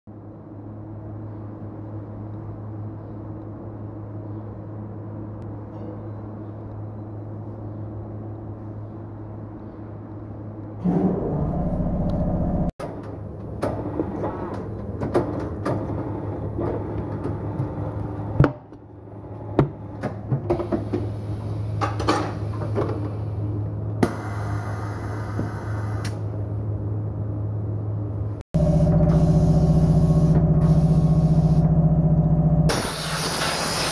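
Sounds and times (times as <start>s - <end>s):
steady low hum: 0.1s - 33.4s.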